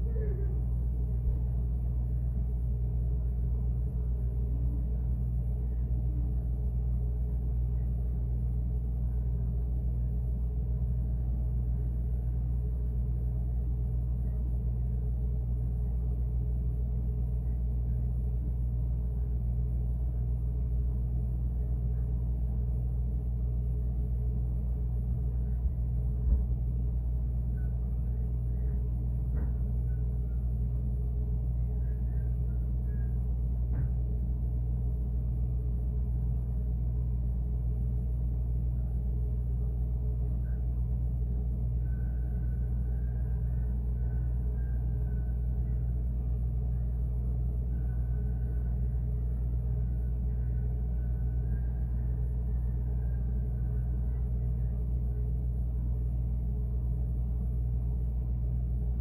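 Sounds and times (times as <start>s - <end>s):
refrigerator humming: 0.0s - 59.0s
soft knock: 33.7s - 34.0s.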